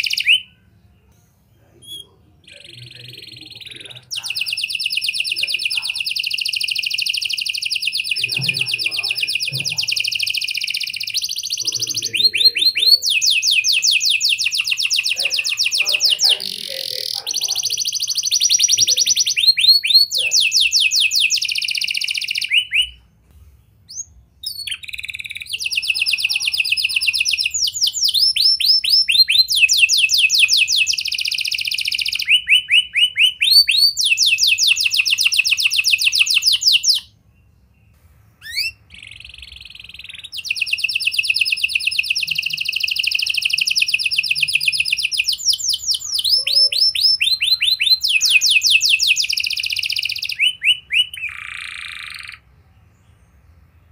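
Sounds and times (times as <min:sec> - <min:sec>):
canary singing: 0:00.0 - 0:53.9.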